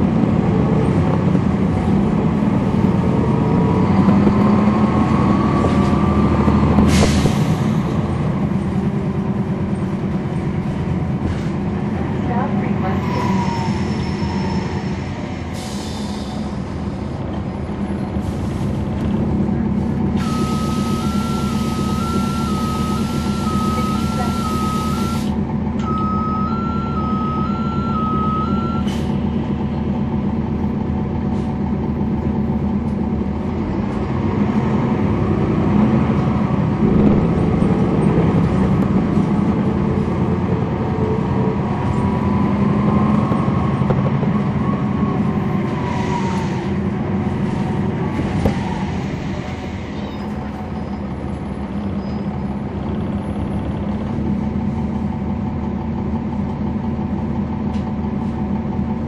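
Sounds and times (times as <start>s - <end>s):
bus diesel engine running: 0.0s - 59.0s
two-pitch electronic warning beep: 20.2s - 29.0s.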